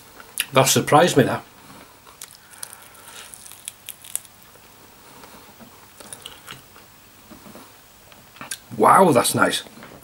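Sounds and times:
chewing crunchy chicken wing: 2.2 - 4.4.

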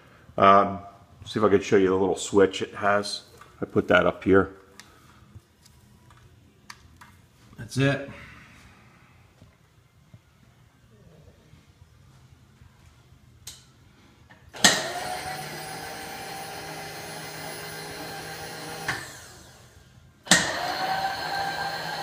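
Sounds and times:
power feed motor whirring: 14.6 - 22.0.

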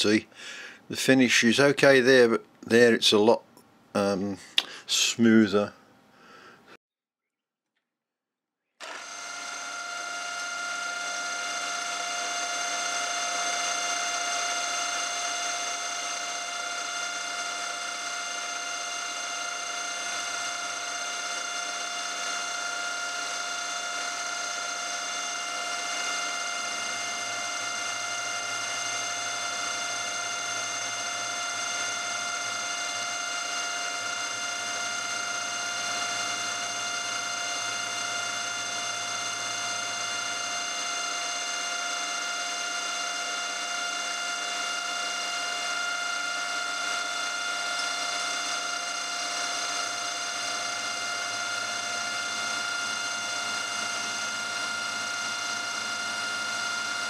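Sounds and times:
end mill cutting metal: 8.8 - 57.0
milling machine spindle whine: 8.8 - 57.0.

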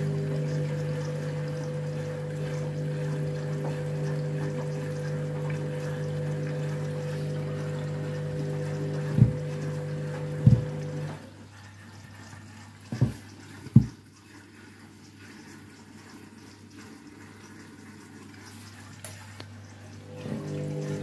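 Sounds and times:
washing machine hum: 0.0 - 21.0
water sloshing in drum: 0.0 - 21.0
dull thumps of wet laundry: 9.0 - 9.6, 10.2 - 11.1, 12.9 - 14.0.

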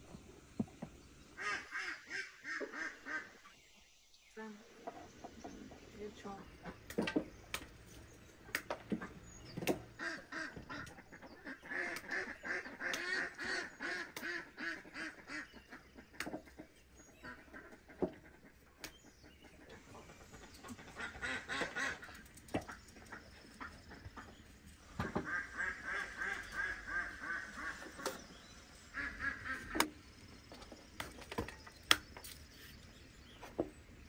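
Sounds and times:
ducks quacking: 1.4 - 3.5, 9.8 - 29.9.

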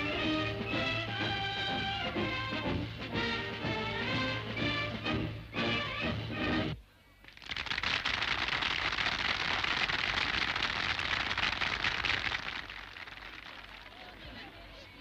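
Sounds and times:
brass band march: 0.0 - 6.8
crowd applauding: 7.3 - 14.5.

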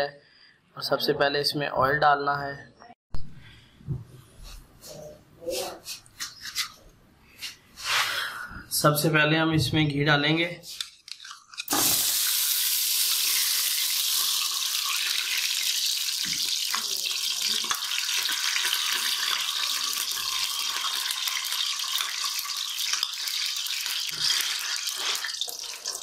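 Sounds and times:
ghee sizzling: 11.7 - 26.0.

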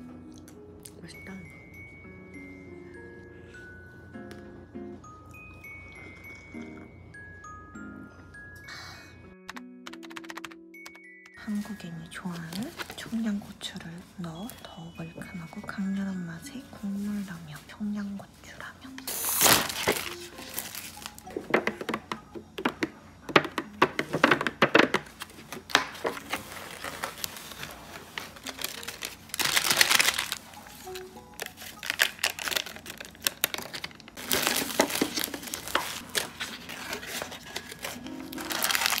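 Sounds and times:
background music: 0.0 - 39.0
plastic and foil crinkling: 11.4 - 15.6, 19.0 - 21.9, 24.2 - 39.0
sachet tearing: 19.1 - 21.3, 26.2 - 39.0.

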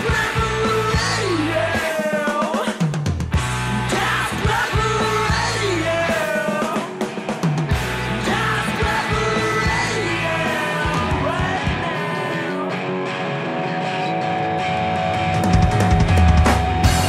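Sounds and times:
rock music with singing: 0.0 - 17.0.

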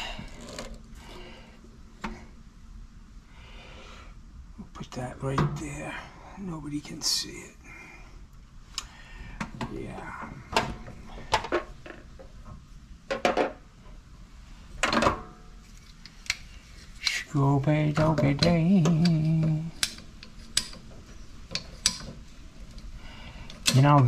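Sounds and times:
low wavering hum: 16.5 - 20.3
pipe fittings clicking and knocking: 17.9 - 22.9.

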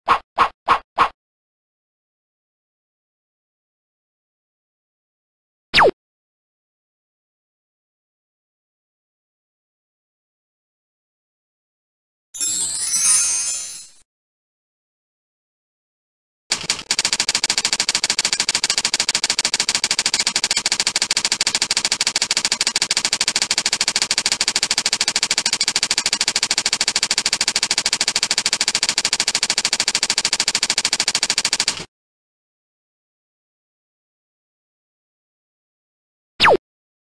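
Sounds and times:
fast typing key clicks: 16.5 - 31.9.

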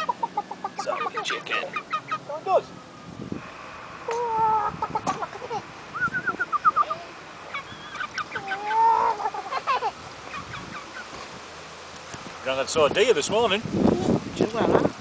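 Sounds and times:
chicken clucking: 0.0 - 2.3, 4.1 - 11.2
chicken calling: 0.0 - 2.6, 4.0 - 11.2.

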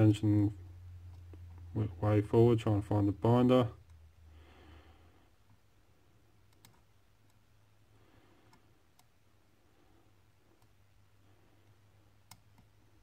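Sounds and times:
soft breath: 4.2 - 6.4, 7.8 - 12.2.

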